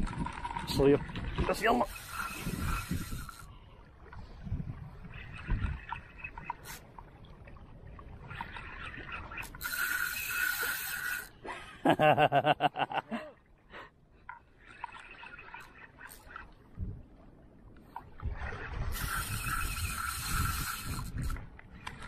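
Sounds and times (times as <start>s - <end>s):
fast reel clicks: 0.0s - 3.5s, 8.4s - 11.3s, 18.9s - 22.0s
fishing reel gears whirring: 0.0s - 3.5s, 8.4s - 11.4s, 18.9s - 22.0s.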